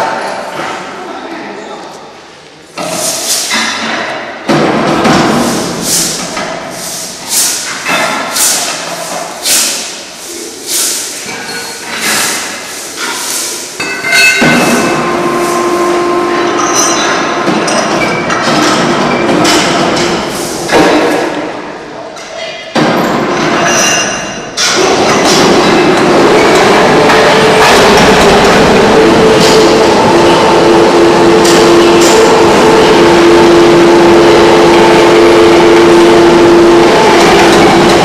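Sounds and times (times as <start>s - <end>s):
steel moulds clanking: 11.1s - 15.7s, 22.2s - 30.3s
steady ringing tones: 13.8s - 19.6s.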